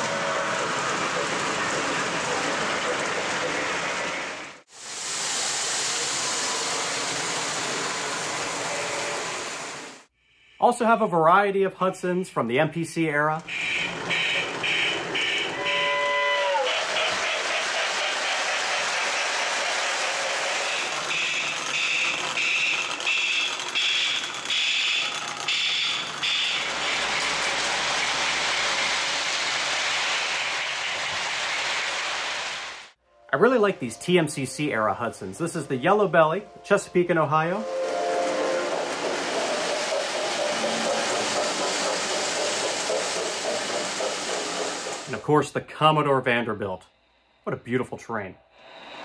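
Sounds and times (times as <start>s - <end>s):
model trains rattling on rails: 0.0s - 9.8s, 13.4s - 16.0s, 16.6s - 33.0s, 37.9s - 45.4s.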